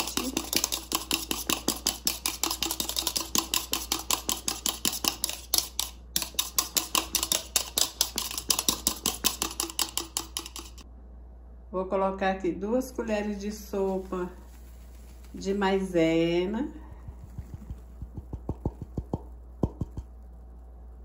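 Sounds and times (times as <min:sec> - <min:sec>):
whisk clicking against bowl: 0:00.0 - 0:10.8, 0:17.4 - 0:20.1.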